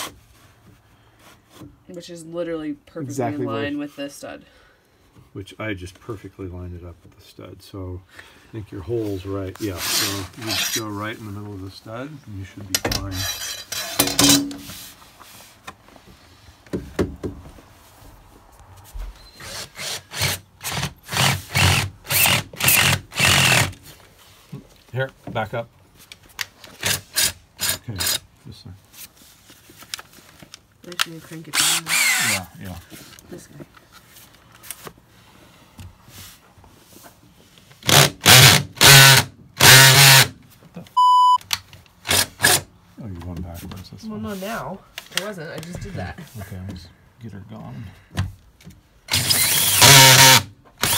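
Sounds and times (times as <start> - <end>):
faint rubbing and handling: 0.0 - 2.3, 8.5 - 16.7, 17.4 - 19.6, 23.7 - 26.8, 28.2 - 31.5, 32.4 - 37.8, 42.8 - 47.7
drill with hole saw cutting: 19.4 - 23.7, 31.6 - 32.4, 37.9 - 40.3, 42.1 - 42.6, 49.1 - 50.9.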